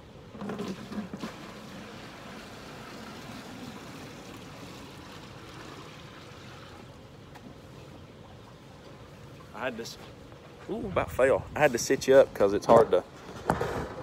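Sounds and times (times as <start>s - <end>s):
water pouring and splashing: 0.3s - 10.0s.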